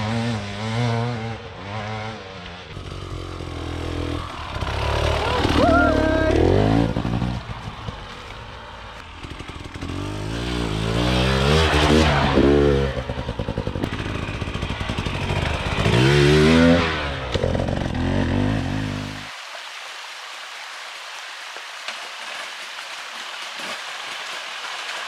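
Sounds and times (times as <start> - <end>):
dirt bike engine revving: 0.0 - 19.3.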